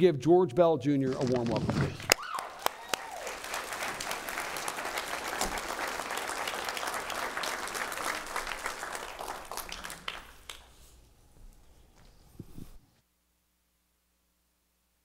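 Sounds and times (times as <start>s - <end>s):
crowd applauding: 2.0s - 10.8s.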